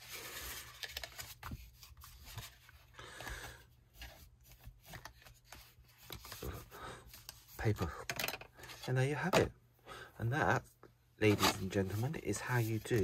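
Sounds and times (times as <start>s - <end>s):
card rustling and ticking: 0.0s - 8.8s.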